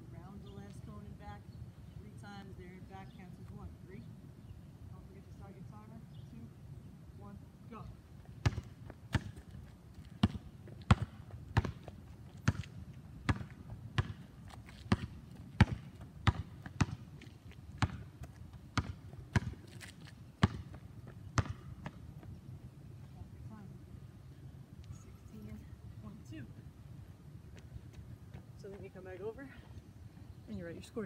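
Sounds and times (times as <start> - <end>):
basketball bouncing on asphalt: 8.2 - 22.4.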